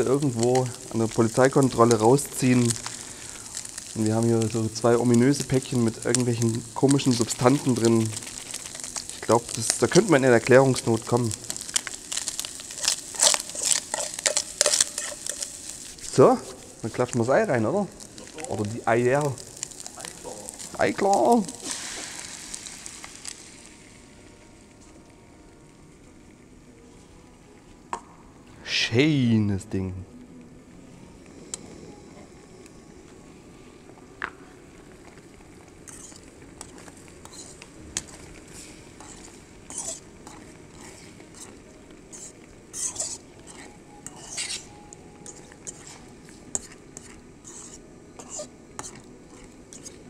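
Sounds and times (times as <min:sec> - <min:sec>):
eggs sizzling in a pot: 0:00.0 - 0:50.0
fork scraping and clinking in metal pot: 0:11.5 - 0:16.2, 0:35.9 - 0:38.3, 0:39.0 - 0:50.0.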